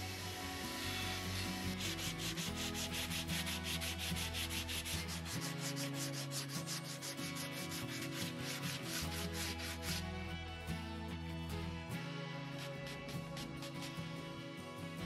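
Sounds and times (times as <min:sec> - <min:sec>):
sandpaper rubbing on wood: 0:00.0 - 0:10.3, 0:12.6 - 0:14.2.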